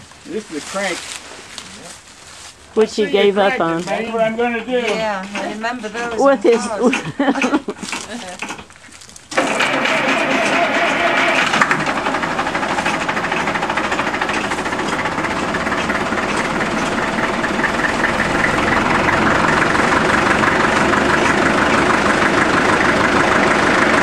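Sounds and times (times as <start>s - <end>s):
diesel engine running: 3.2s - 8.6s, 9.3s - 24.0s.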